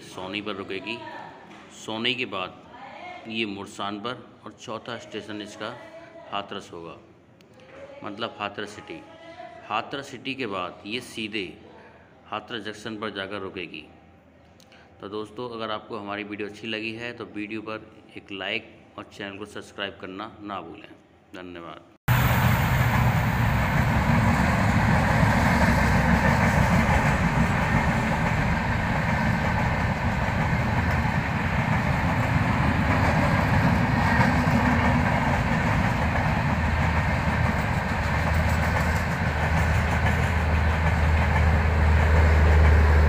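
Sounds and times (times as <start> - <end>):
train wheels on rails clickety-clack: 22.8 - 43.0.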